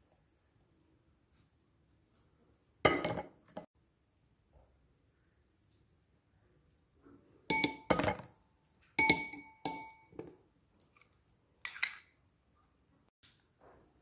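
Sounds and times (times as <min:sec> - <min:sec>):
teaspoon clinking on porcelain: 0:09.0 - 0:10.1.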